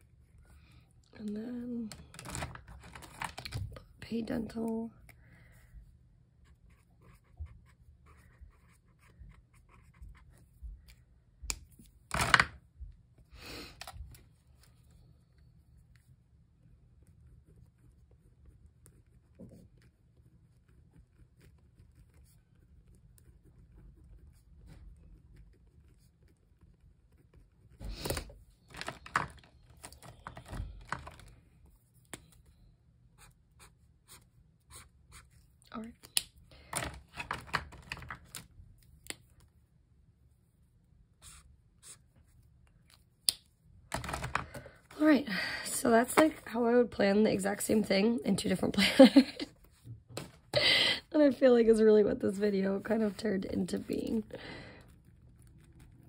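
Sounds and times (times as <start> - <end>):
paper rustling: 1.9 - 3.8, 27.7 - 32.5, 36.6 - 39.2, 43.9 - 45.1
pen scratching on paper: 6.4 - 10.5, 17.0 - 27.9, 33.2 - 35.5.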